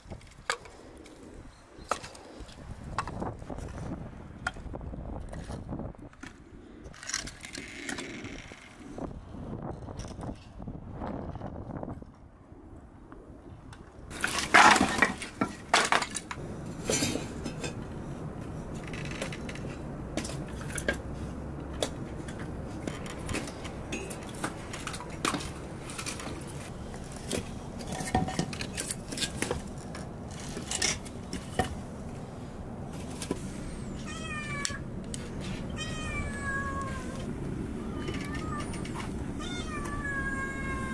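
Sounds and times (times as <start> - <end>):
firewood logs knocking and clattering: 1.8 - 6.4, 14.1 - 32.2
cat meowing: 34.0 - 34.8, 35.7 - 37.2, 37.8 - 40.9.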